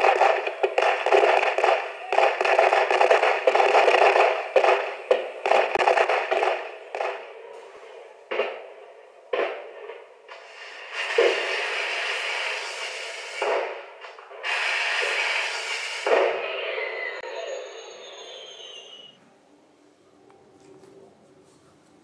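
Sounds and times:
crackling from small speaker: 0.0s - 7.3s.

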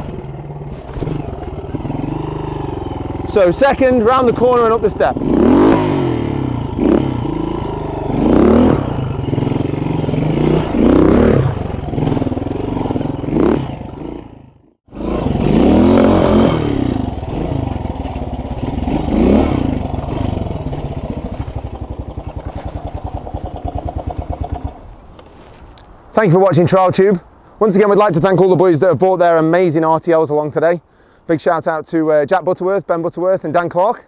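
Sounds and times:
motorcycle engine revving: 0.0s - 25.4s.

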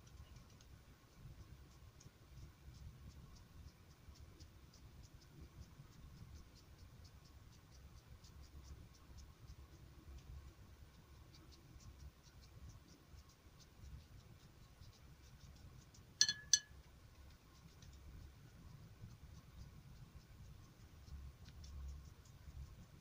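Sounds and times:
paintbrush dabbing paper: 0.0s - 23.0s.

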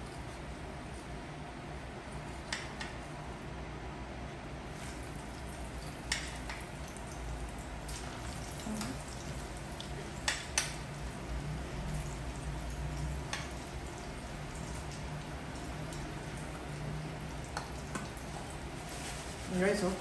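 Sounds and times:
meat sizzling in hot oil: 5.0s - 19.7s.

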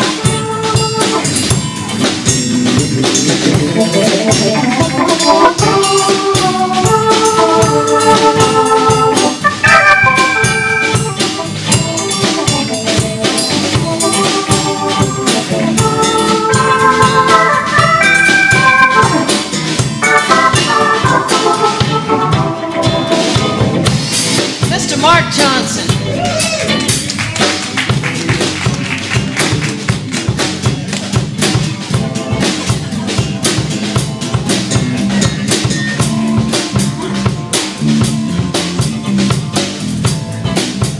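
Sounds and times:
blues band playing: 0.0s - 40.9s
drum kit beat: 0.0s - 40.9s
electric bass: 0.0s - 40.9s
organ chords: 0.0s - 40.9s.

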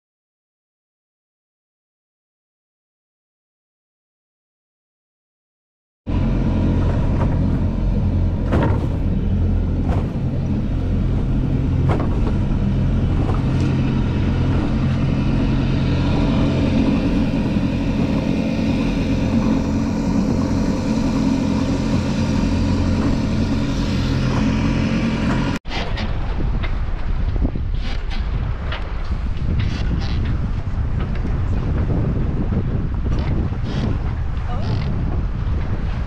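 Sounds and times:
boat engine running: 6.1s - 36.0s
water noise: 6.1s - 36.0s
wind: 6.1s - 36.0s
sharp knocks: 8.4s - 9.1s, 11.8s - 12.5s.

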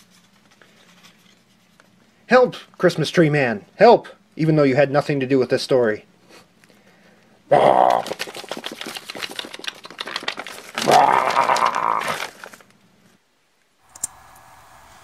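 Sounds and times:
monster roars: 7.5s - 8.1s, 10.8s - 12.3s
paper puppet crackling: 7.6s - 12.8s.

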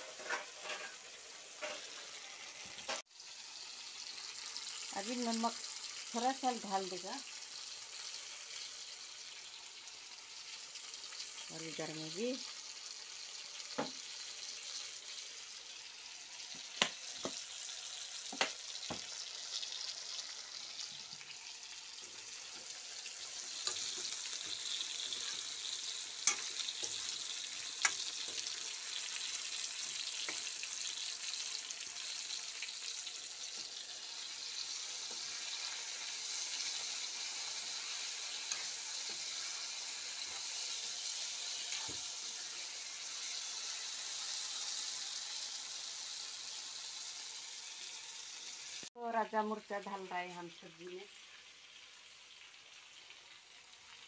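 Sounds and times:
food sizzling in oil: 0.0s - 54.0s
metal spoon clinking on pan: 26.2s - 27.1s.

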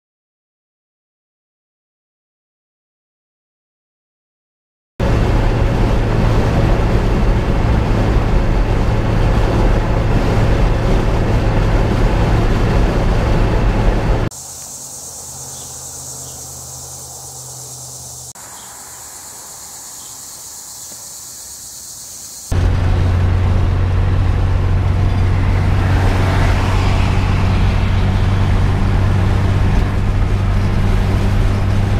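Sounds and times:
vehicle cabin road and engine noise: 5.0s - 31.9s
steady high hiss: 14.3s - 22.5s.

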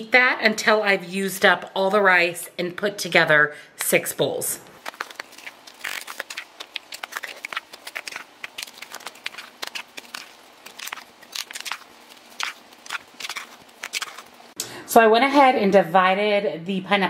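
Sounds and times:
spoon scraping a skillet: 4.8s - 14.6s.

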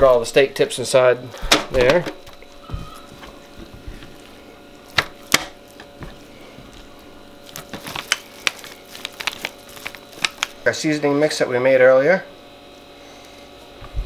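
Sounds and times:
foil tray clicks: 7.5s - 10.6s.

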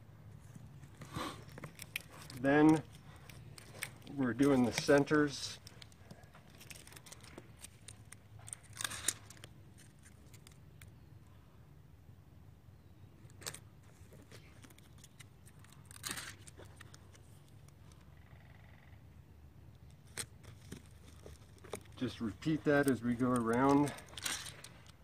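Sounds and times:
short tearing sounds: 0.9s - 10.9s, 13.3s - 17.4s
velcro backing peeled off: 1.0s - 10.9s, 13.3s - 18.0s, 20.0s - 25.0s.

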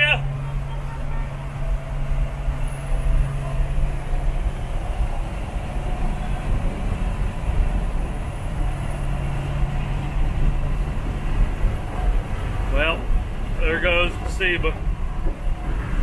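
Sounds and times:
engine drone: 0.0s - 16.0s
road rumble: 0.0s - 16.0s.

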